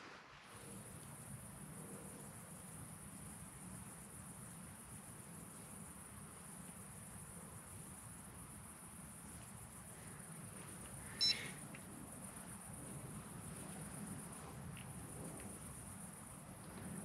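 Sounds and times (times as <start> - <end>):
crickets chirring: 0.6 - 17.0
short high beep: 11.2 - 11.5.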